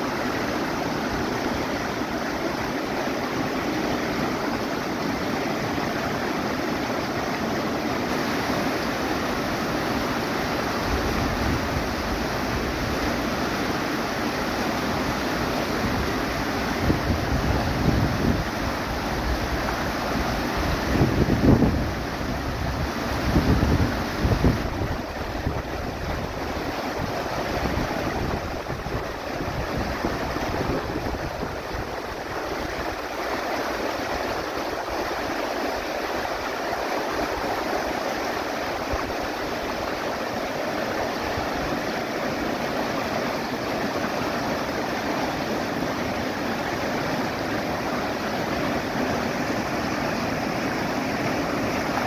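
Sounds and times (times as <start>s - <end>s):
river rushing over rocks: 0.0s - 52.0s
wind buffeting microphone: 16.8s - 32.7s.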